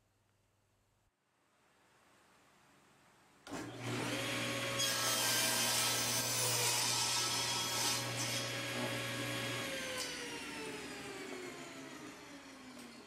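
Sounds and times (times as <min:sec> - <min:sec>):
table saw cutting wood: 0:03.5 - 0:13.0.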